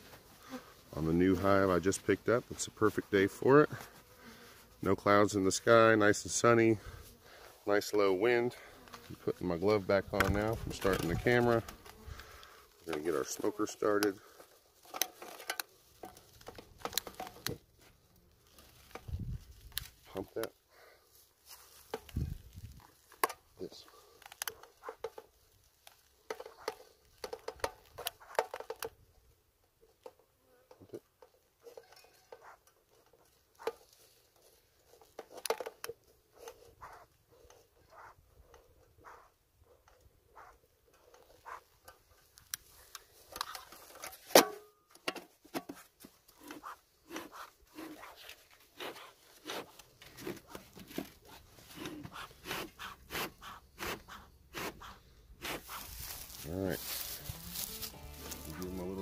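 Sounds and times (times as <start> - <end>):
rustling crumpling and scraping: 6.4 - 20.5, 21.1 - 28.8, 55.5 - 59.0.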